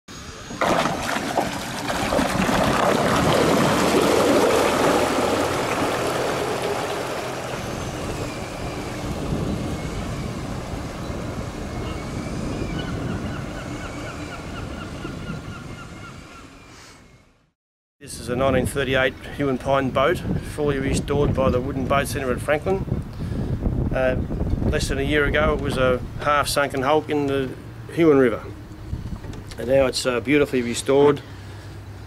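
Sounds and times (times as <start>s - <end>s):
water rushing along boat hull: 0.5s - 15.3s
faint bird calls: 11.6s - 17.3s.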